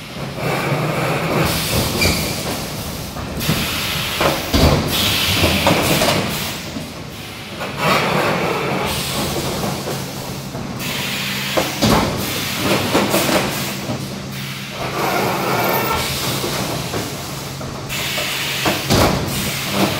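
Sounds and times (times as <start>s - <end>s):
compressed air hiss: 1.5s - 7.5s, 10.8s - 19.9s.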